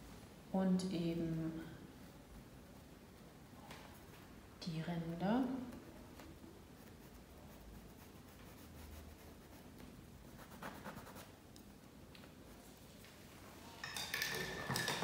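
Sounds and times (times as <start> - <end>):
paintbrush scratching on canvas: 6.7 - 11.3.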